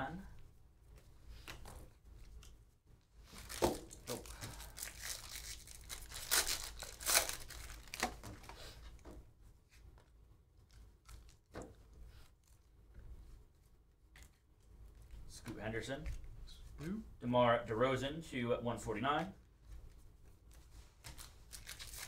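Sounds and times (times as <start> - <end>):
foil wrapper tearing and crinkling: 3.4 - 8.5, 21.0 - 22.0.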